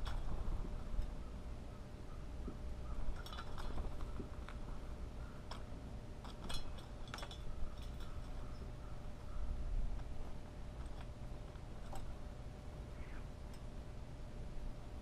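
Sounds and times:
bird claws and beak tapping metal: 5.4 - 8.5.

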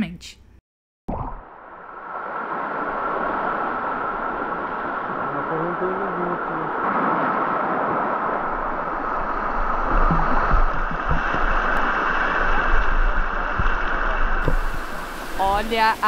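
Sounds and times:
low thumps: 14.4 - 15.3
river water rushing over stones: 14.4 - 16.0.

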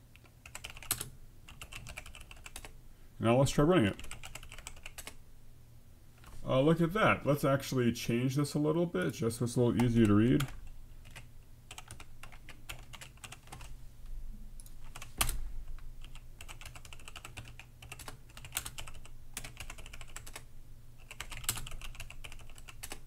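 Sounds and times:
computer keyboard typing: 0.2 - 2.7, 4.0 - 5.2, 9.8 - 13.7, 14.6 - 15.4, 16.0 - 23.0.

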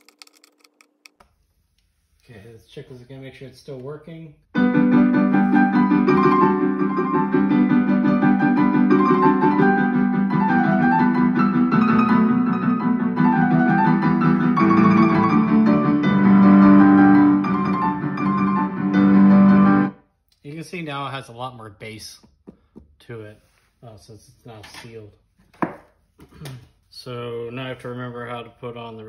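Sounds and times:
piano music through speaker: 4.6 - 19.9.

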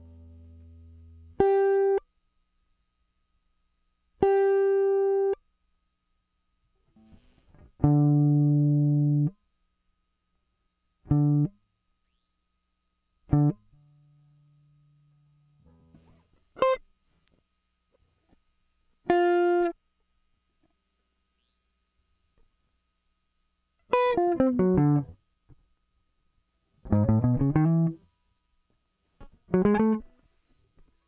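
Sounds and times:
compressed electric guitar notes: 7.8 - 9.3, 11.1 - 11.5, 23.9 - 25.1, 26.8 - 28.0, 29.5 - 30.1.

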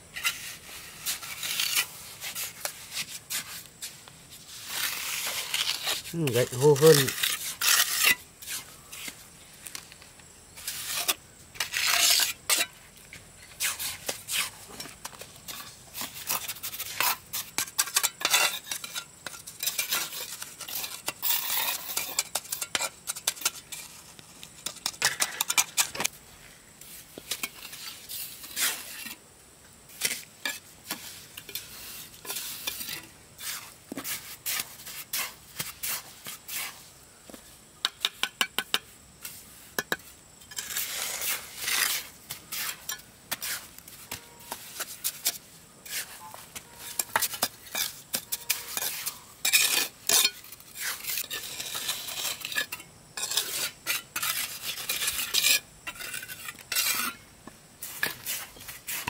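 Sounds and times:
metal scraping and clinking: 40.4 - 57.2.

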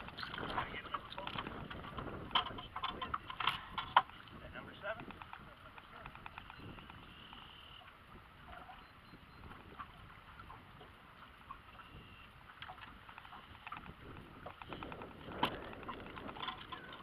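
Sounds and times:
small ticks and knocks: 0.0 - 8.8, 12.5 - 17.0
water lapping against boat hull: 0.0 - 17.0
wind rumbling on microphone: 0.0 - 17.0.

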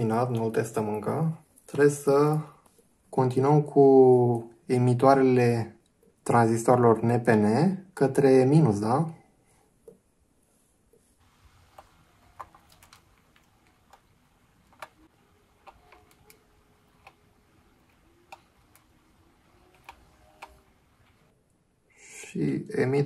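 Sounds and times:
small clicks of wires into breadboard: 11.7 - 19.0.

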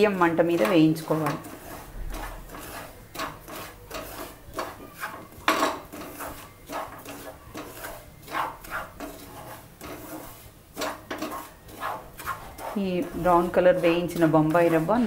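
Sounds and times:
wooden spatula scraping frying pan: 0.0 - 15.0.

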